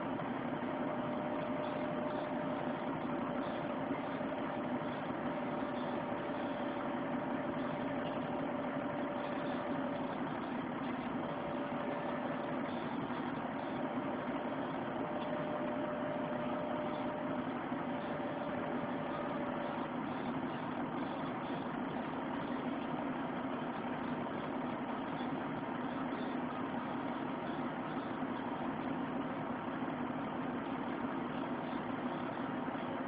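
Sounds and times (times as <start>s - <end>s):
faint steady whine: 0.0s - 33.0s.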